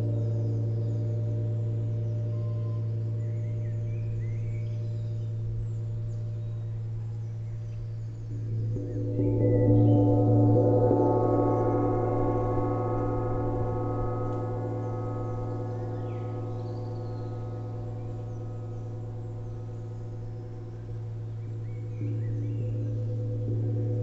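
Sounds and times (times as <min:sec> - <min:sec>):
large gong ringing: 0:08.3 - 0:24.0.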